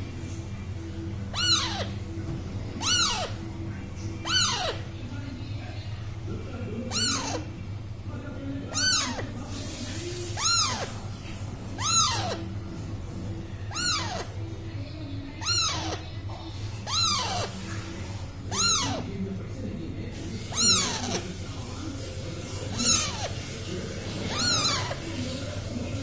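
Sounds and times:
faint music: 0.0 - 26.0
parakeet squawks: 0.9 - 5.0, 6.8 - 7.7, 8.6 - 12.6, 13.6 - 14.6, 15.3 - 19.2, 20.2 - 26.0.

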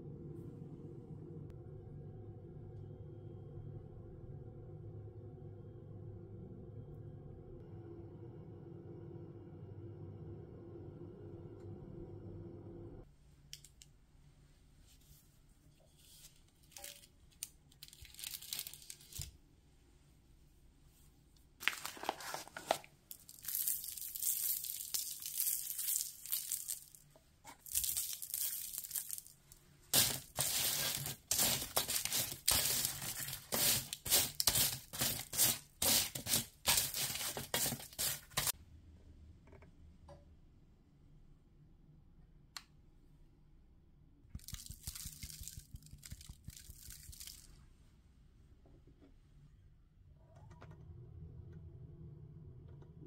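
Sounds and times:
parchment paper crinkling: 16.2 - 19.3, 21.6 - 38.5, 44.4 - 47.5.

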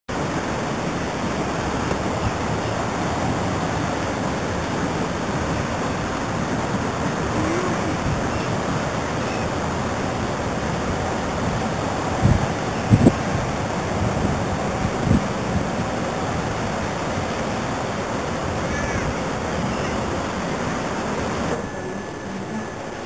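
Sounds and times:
wind on microphone: 0.1 - 21.6.

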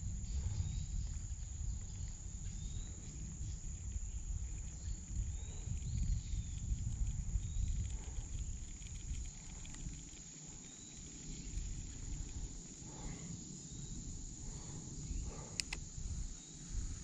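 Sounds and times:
insects droning: 0.0 - 17.0
sharp clicks: 15.5 - 15.9.

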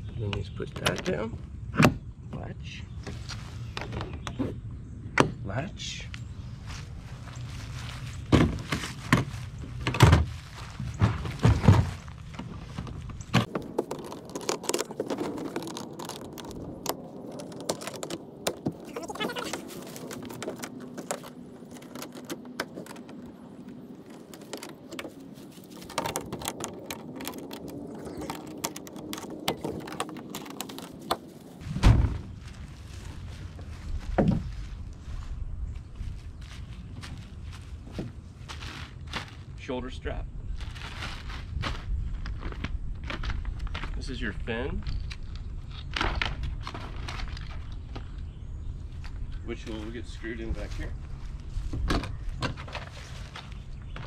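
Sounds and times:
board thumping: 11.0 - 12.6.

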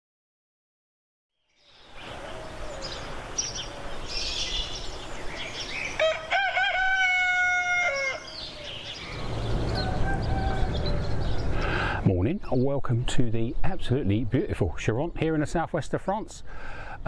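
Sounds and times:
small birds chirping: 1.4 - 15.6
rooster crowing: 2.0 - 11.7.

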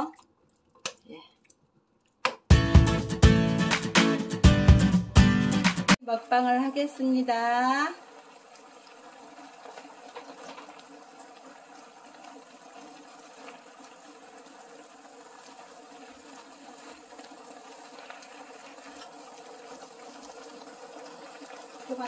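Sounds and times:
meat simmering in a frying pan: 6.0 - 22.0
faint crackles: 7.8 - 22.0.

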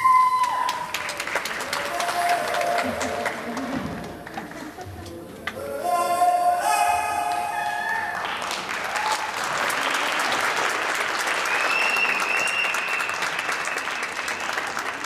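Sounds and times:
audience applauding: 0.0 - 4.8, 7.3 - 15.0
high call from crowd: 5.6 - 9.3.

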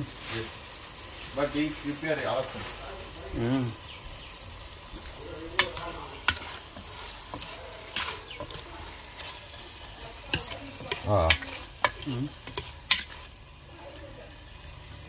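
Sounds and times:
food sizzling: 0.0 - 15.0
metal spoon scraping a pot: 5.5 - 13.4.

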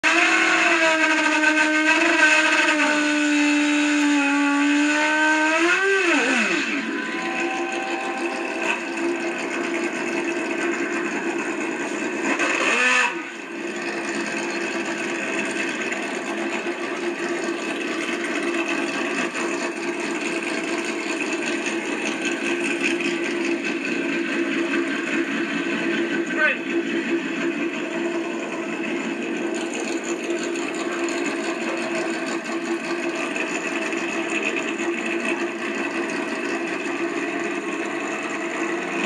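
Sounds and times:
motorcycle engine revving: 0.0 - 39.0.

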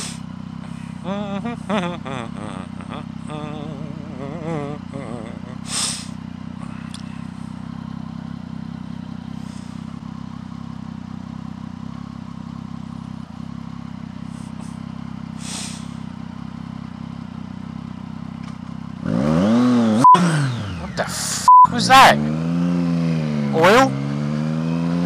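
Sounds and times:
motorcycle engine idling: 0.0 - 19.1
motorcycle engine revving: 0.0 - 25.0.

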